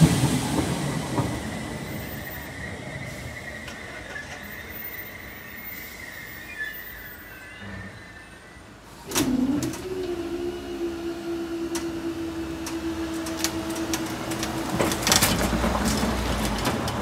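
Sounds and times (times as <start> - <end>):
car driving over crossing: 8.8 - 17.0
barrier motor humming: 9.1 - 16.7.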